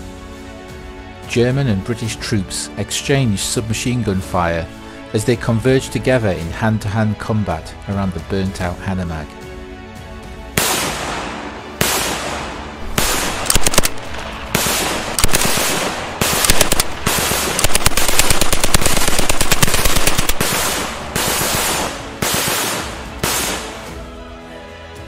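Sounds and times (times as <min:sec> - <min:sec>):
submachine gun fire: 0:10.6 - 0:23.9.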